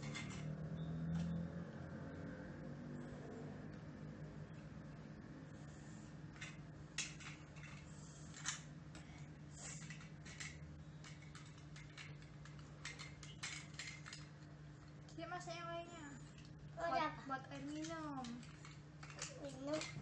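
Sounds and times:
plastic toys clicking and tapping: 0.0s - 0.5s, 6.4s - 15.2s, 17.4s - 20.0s.

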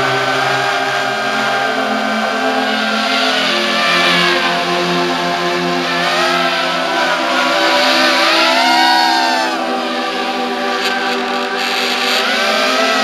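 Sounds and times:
quadcopter propellers whining: 0.0s - 13.0s.

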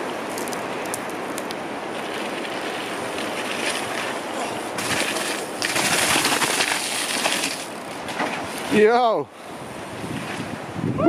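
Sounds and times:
bike tyres tearing through mud: 1.8s - 9.0s
wind noise on microphone: 4.6s - 7.7s, 8.3s - 11.0s.

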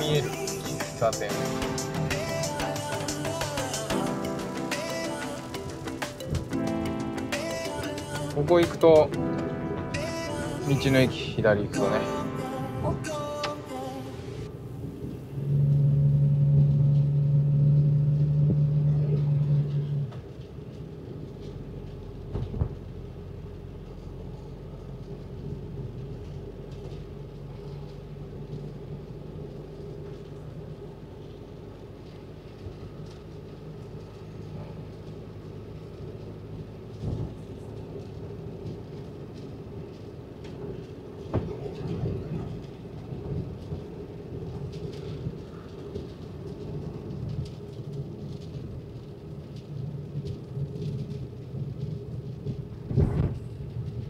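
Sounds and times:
loud steady hum: 0.0s - 20.7s
engine and tyres rumbling: 0.0s - 54.0s.

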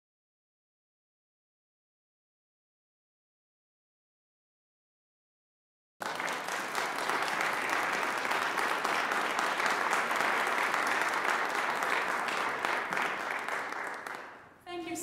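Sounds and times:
audience applauding: 6.0s - 14.6s.

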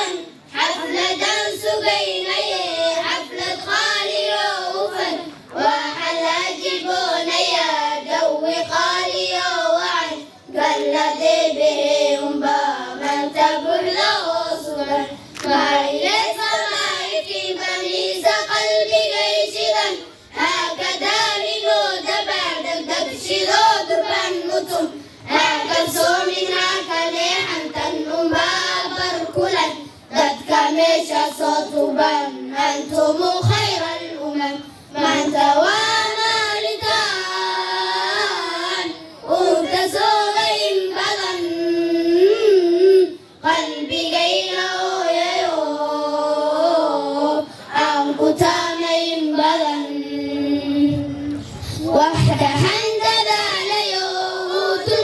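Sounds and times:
children singing: 0.0s - 55.0s.

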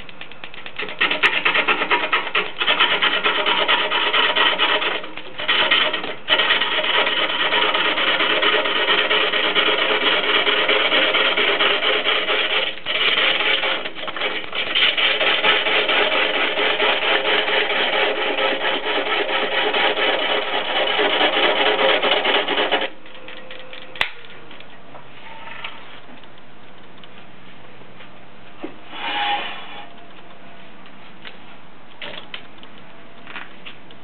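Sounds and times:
gouge scraping wood on lathe: 1.0s - 22.9s, 28.9s - 29.9s.

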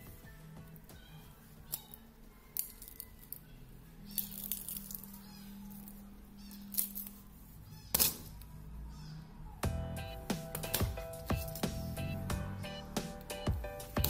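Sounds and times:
small plastic clicks and crackles: 4.1s - 7.2s.

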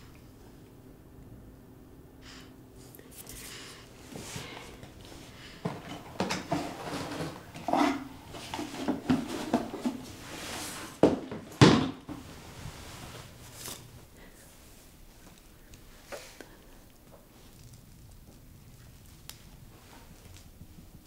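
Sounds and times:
items knocking and rustling in suitcase: 8.3s - 12.3s.

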